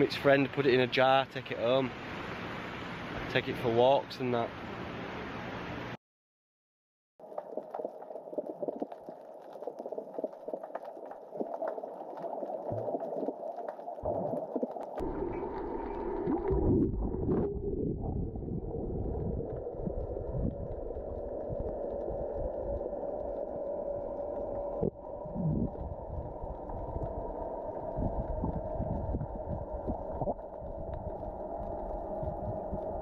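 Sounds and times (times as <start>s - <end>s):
faint underwater clicks: 7.2s - 17.6s, 19.1s - 33.0s
muffled underwater rush: 7.2s - 33.0s
deep rumbling water churn: 7.3s - 33.0s.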